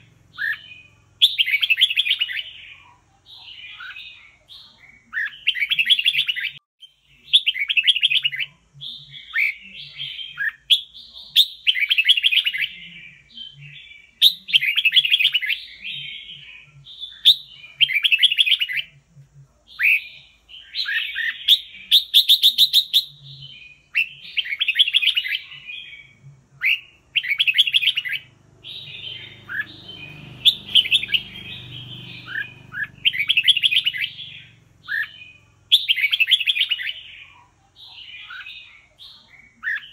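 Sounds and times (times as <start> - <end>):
bird singing whistled phrases: 19.8 - 37.0.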